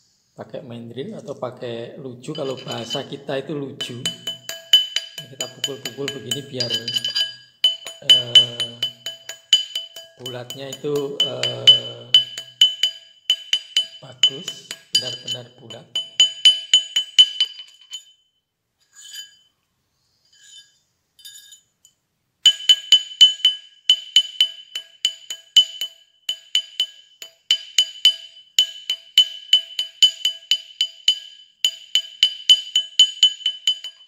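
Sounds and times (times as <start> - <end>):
hammer tapping metal ring: 2.3 - 18.1, 22.5 - 34.0.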